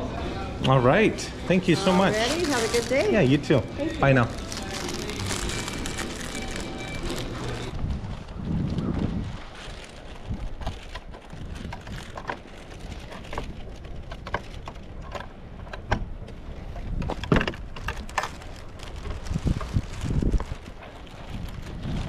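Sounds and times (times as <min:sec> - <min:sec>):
wind rumbling on microphone: 0:01.3 - 0:22.0
footsteps crunching in snow: 0:01.8 - 0:10.6.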